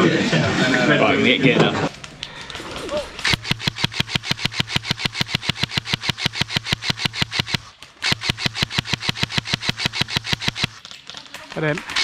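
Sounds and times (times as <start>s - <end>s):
steady hum: 1.8s - 10.8s
airsoft rifle full-auto bursts: 2.4s - 10.9s.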